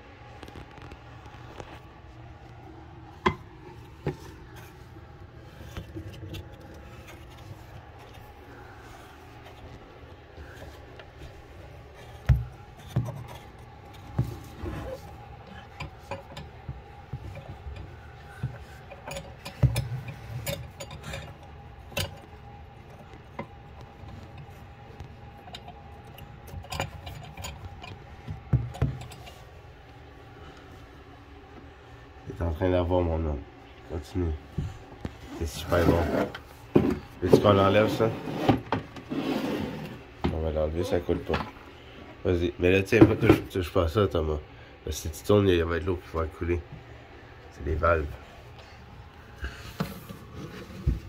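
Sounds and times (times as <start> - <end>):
steady hum: 0.0 - 51.0
knocks and clinks on metal fittings: 15.5 - 22.4, 25.4 - 29.4.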